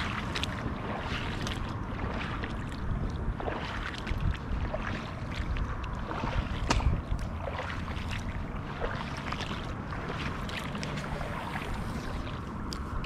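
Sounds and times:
wading splashes in shallow water: 0:00.0 - 0:13.0
wind rumbling on microphone: 0:00.0 - 0:13.0
grass swishing: 0:10.2 - 0:13.0.

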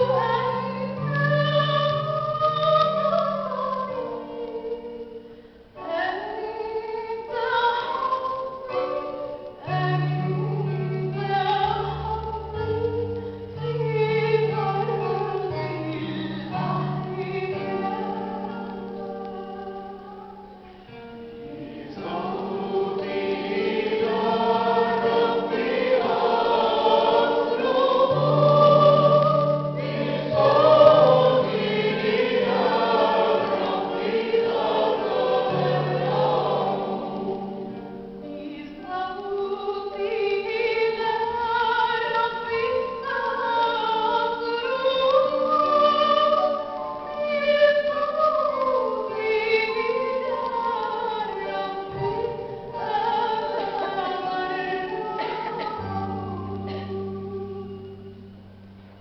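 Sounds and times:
choir singing a hymn: 0:00.0 - 0:05.2, 0:21.0 - 0:58.3.

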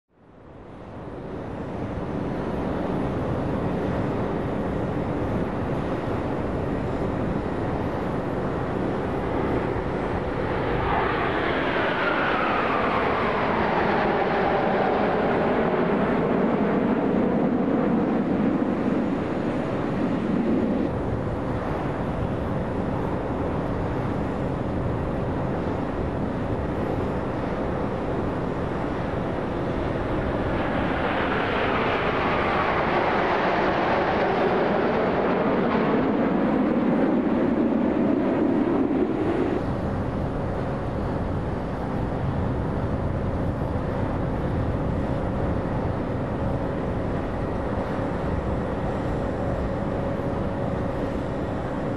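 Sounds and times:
jets flying past with falling whine: 0:01.2 - 0:41.7.

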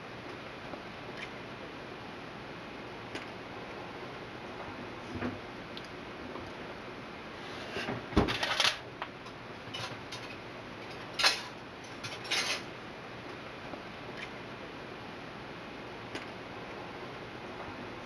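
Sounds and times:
steady background hiss: 0:00.0 - 0:18.0
kitchen clinks: 0:11.2 - 0:12.7.

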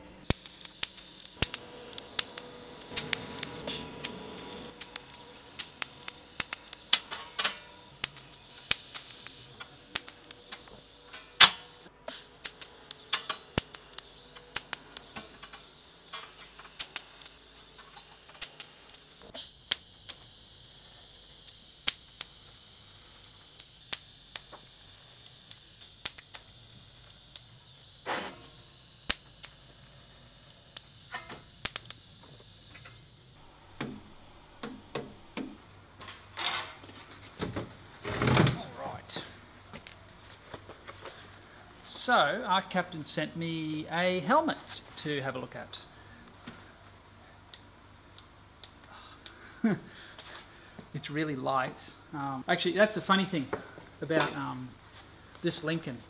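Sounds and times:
high-pitched welder whine: 0:00.0 - 0:37.1, 0:38.1 - 0:40.0
sharp welding ticks: 0:00.2 - 0:33.4, 0:47.5 - 0:49.5.

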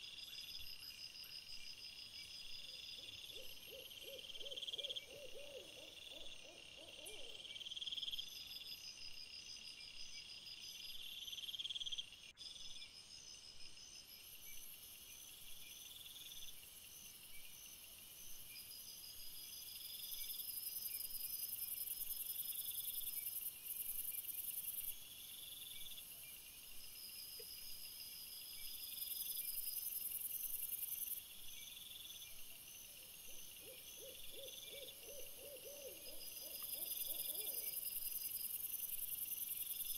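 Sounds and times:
crickets chirping: 0:00.0 - 0:39.9
high steady insect buzz: 0:07.4 - 0:39.9.

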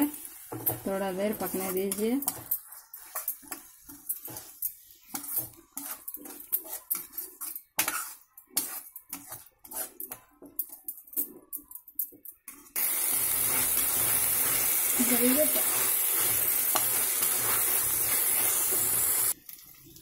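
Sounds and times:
frying sizzle: 0:00.0 - 0:08.2, 0:12.5 - 0:20.0
spatula scraping a wok: 0:00.1 - 0:11.3, 0:12.5 - 0:19.4.

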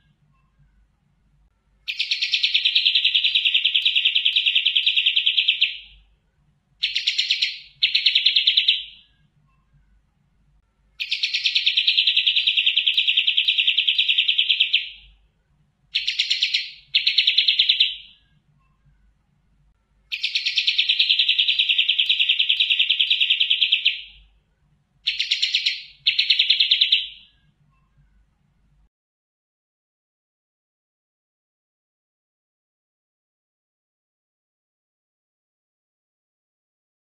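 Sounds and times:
bird singing rapid trill: 0:01.8 - 0:06.1, 0:06.8 - 0:09.8, 0:10.9 - 0:15.2, 0:15.9 - 0:18.9, 0:20.1 - 0:24.4, 0:25.0 - 0:28.0.

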